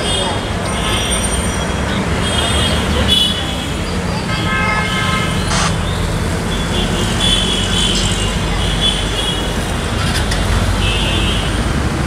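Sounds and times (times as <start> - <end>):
traffic rumble: 0.0 - 12.0.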